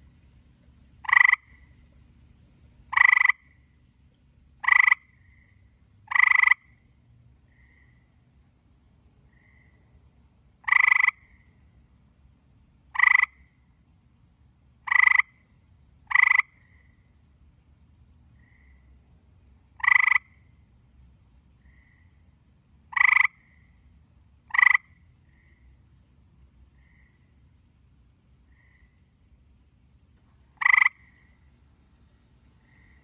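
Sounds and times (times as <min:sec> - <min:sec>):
fainter frog calls: 0:01.0 - 0:01.8, 0:02.9 - 0:03.8, 0:04.6 - 0:08.2, 0:09.3 - 0:10.0, 0:10.6 - 0:11.8, 0:12.9 - 0:13.8, 0:14.8 - 0:17.2, 0:18.4 - 0:19.0, 0:19.7 - 0:20.7, 0:21.6 - 0:25.9, 0:26.7 - 0:27.6, 0:28.4 - 0:29.3, 0:30.3 - 0:33.0
tree frog trilling: 0:01.0 - 0:01.8, 0:02.9 - 0:03.6, 0:04.6 - 0:06.8, 0:10.6 - 0:11.6, 0:12.9 - 0:13.6, 0:14.8 - 0:15.4, 0:16.1 - 0:17.0, 0:19.7 - 0:20.5, 0:22.9 - 0:23.8, 0:24.5 - 0:25.7, 0:28.5 - 0:29.0, 0:30.4 - 0:33.0.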